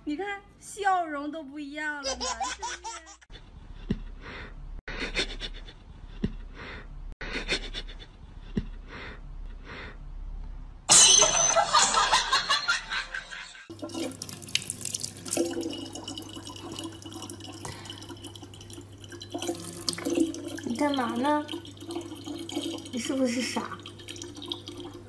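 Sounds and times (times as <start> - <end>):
rhythmic breathing sounds: 3.3 - 10.1
faucet running into bottle: 13.7 - 25.0.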